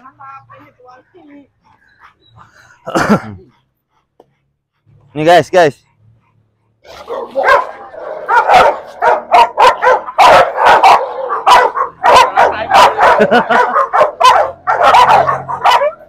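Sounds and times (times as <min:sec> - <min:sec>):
dogs barking: 0:06.8 - 0:16.0.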